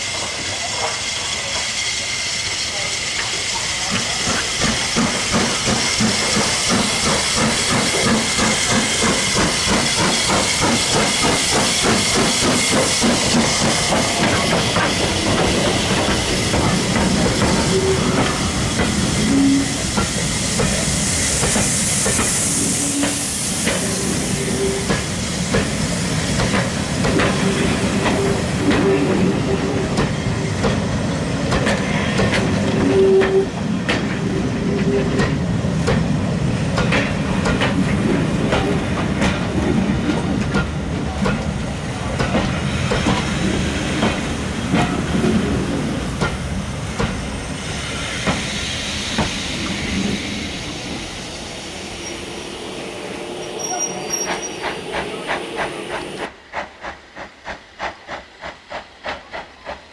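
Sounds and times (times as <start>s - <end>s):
train wheels clicking on rail joints: 0.0s - 52.3s, 53.6s - 59.9s
steam hiss: 0.0s - 59.9s
wheel squeals: 53.5s - 55.3s.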